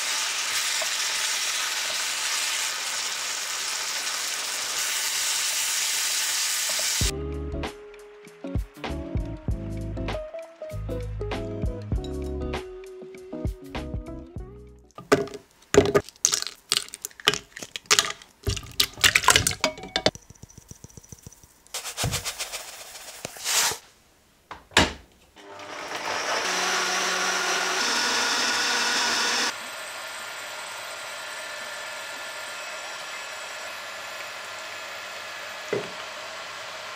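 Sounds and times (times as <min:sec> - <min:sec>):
blender running: 0:00.0 - 0:07.1, 0:25.4 - 0:36.9.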